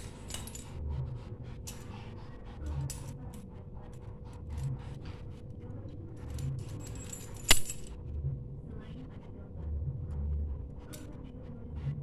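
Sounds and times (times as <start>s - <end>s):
sharp loud clink: 7.5s - 7.9s.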